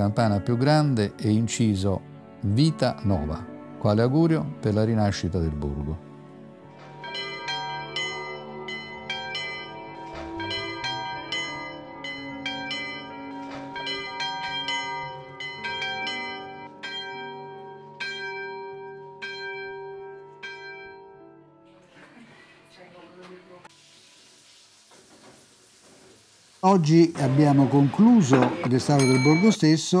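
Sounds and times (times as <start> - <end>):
church bells ringing: 6.7 - 21.6, 28.2 - 30.0.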